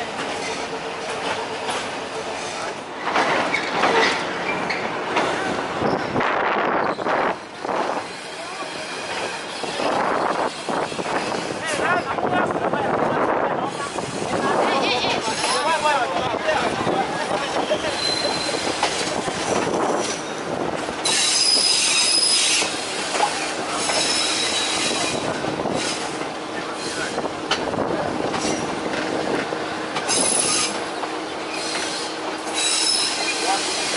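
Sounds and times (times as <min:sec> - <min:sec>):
train wheels rumbling on rails: 0:00.0 - 0:33.9
high-pitched wheel squeal: 0:17.7 - 0:18.8, 0:21.0 - 0:22.8, 0:23.7 - 0:25.2, 0:30.1 - 0:30.8, 0:31.5 - 0:33.9.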